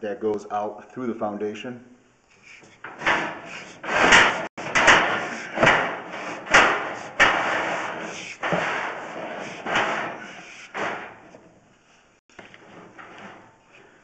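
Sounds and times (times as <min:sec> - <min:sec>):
cable knocking and scraping in drain: 0:02.8 - 0:11.4.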